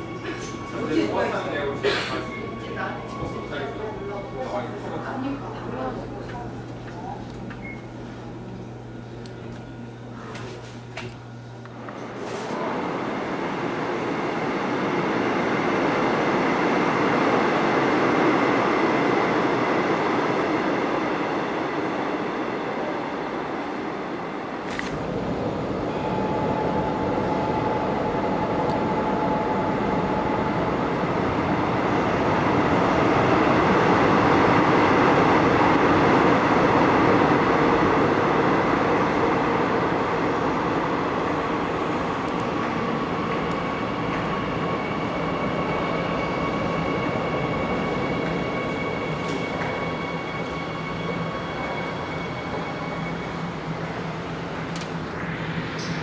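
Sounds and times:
subway train rumble: 0:00.0 - 0:56.0
thin steady whines: 0:00.0 - 0:56.0.

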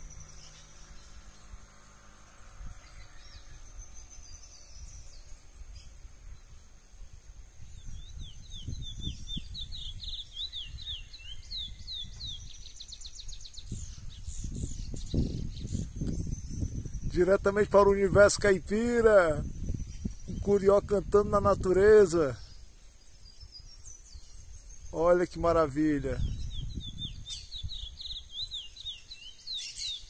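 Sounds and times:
finch whistling song and trill: 0:07.7 - 0:18.2, 0:23.2 - 0:30.0.

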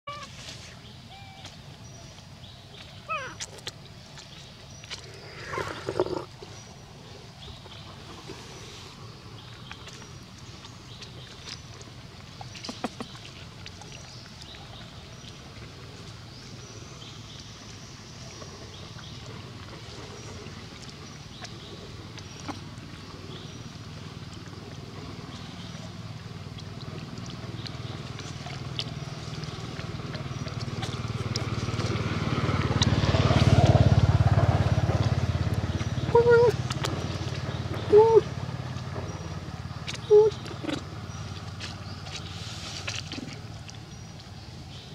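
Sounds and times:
engine humming: 0:00.1 - 0:44.9
monkey calls: 0:03.1 - 0:03.4, 0:36.0 - 0:36.6, 0:37.8 - 0:38.3.

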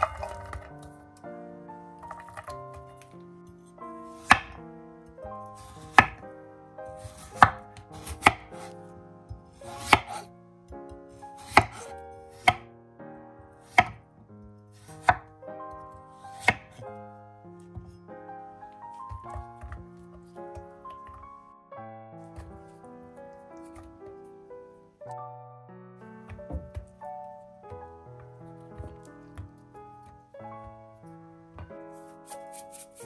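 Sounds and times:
soft background music: 0:00.0 - 0:33.0
knife knocking on wooden board: 0:26.3 - 0:26.9.

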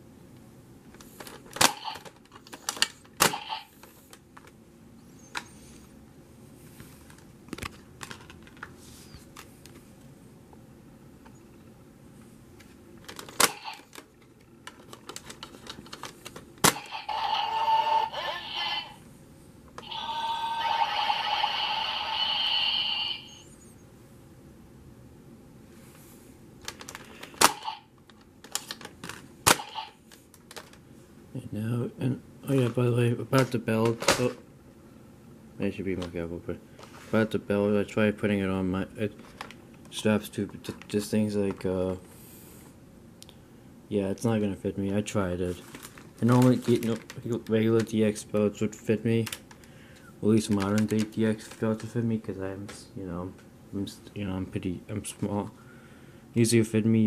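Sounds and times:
plastic toy clicks and clacks: 0:50.5 - 0:51.9.

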